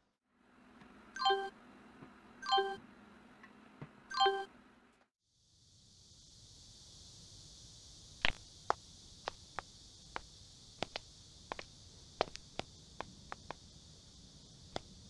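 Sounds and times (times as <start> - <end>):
faint steady hiss: 5.3 - 15.0
rat claws clicking on tabletop: 8.2 - 13.6.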